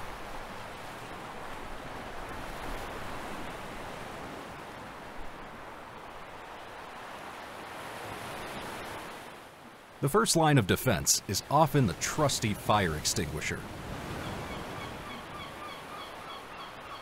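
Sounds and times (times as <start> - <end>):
water rushing: 5.9 - 14.3.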